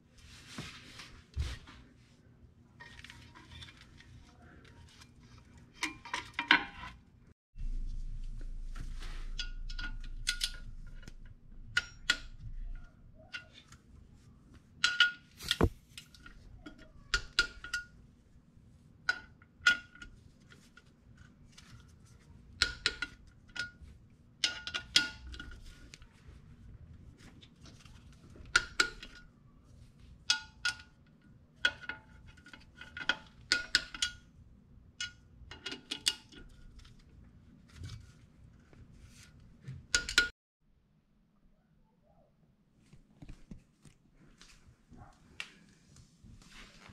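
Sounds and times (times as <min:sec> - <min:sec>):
low hum: 0:07.6 - 0:13.2.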